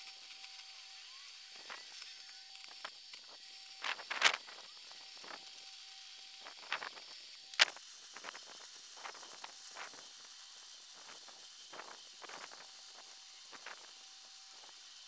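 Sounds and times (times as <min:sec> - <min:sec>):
welding arc hissing and crackling: 0:00.0 - 0:15.0
sharp welding pops: 0:01.6 - 0:05.4, 0:06.4 - 0:10.0.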